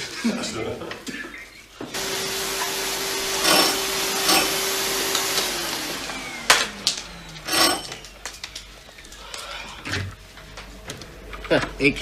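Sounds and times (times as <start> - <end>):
vacuum cleaner whine: 1.8 - 8.1.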